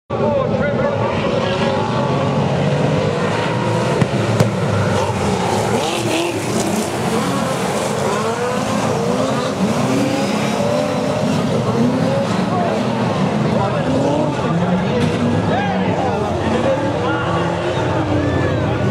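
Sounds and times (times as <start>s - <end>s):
race car engines revving: 0.1s - 18.9s.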